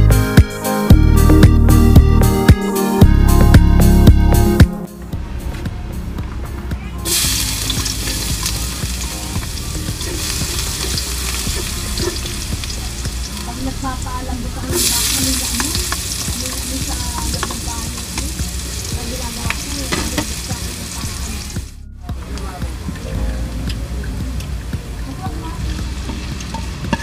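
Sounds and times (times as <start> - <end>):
spatula stirring in a wok: 7.1 - 13.6, 14.6 - 20.6, 25.5 - 27.0
garlic sizzling in hot oil: 7.1 - 21.8, 24.6 - 27.0.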